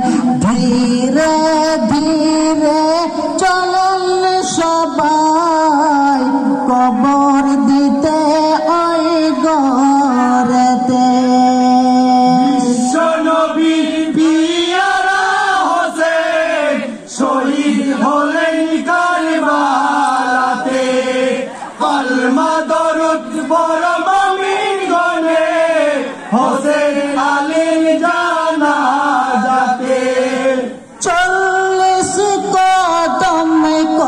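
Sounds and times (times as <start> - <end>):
singer on a microphone: 0.0 - 34.0
men's group chanting: 8.6 - 34.0.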